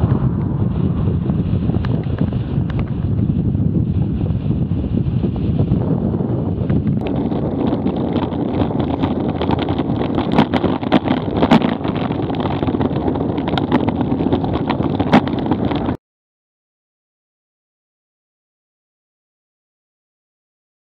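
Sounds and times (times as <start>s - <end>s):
road rumble: 0.0s - 16.0s
wind buffeting microphone: 0.0s - 16.0s.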